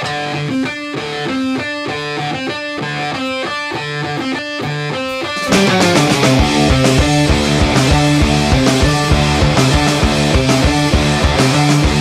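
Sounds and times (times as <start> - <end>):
guitar picking a riff: 0.0 - 12.0
full band playing: 5.4 - 12.0.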